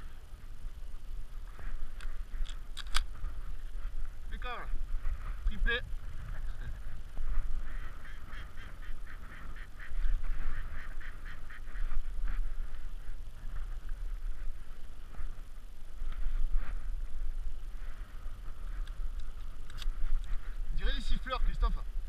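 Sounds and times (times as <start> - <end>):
wind rumble on microphone: 0.0 - 22.0
ducks quacking: 6.2 - 14.4.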